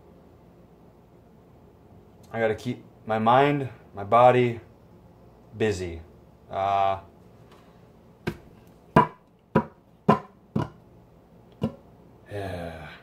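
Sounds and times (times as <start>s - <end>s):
sharp taps on hard surface: 8.3s - 10.8s, 11.6s - 11.8s.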